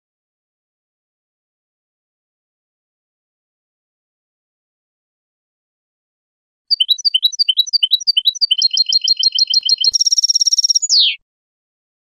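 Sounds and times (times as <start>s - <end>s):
finch song with chirps and trill: 6.7s - 11.2s.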